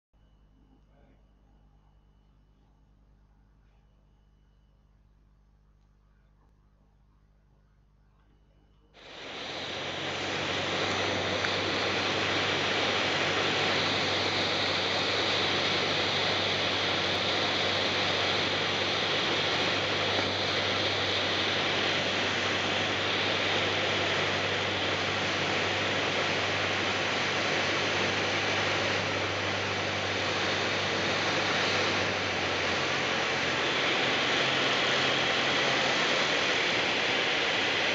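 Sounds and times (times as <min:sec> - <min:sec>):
light aircraft engine: 0:09.0 - 0:37.9
rush of air: 0:09.0 - 0:37.9.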